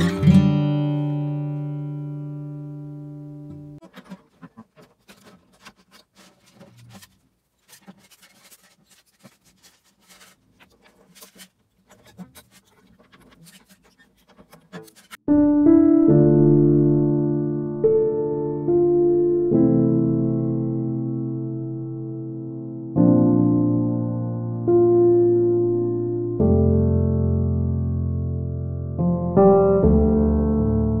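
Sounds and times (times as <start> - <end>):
acoustic guitar chord ringing: 0.0 - 3.8
electric piano music: 0.0 - 3.8, 15.3 - 31.0
guitar strings clicking and rattling: 3.8 - 15.2.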